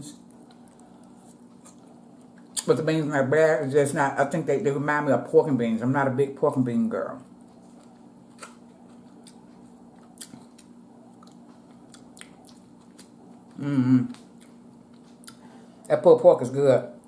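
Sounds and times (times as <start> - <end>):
soft chewing: 0.0 - 2.8, 7.1 - 16.0
steady low hum: 0.0 - 17.0
person humming mm: 13.6 - 14.2.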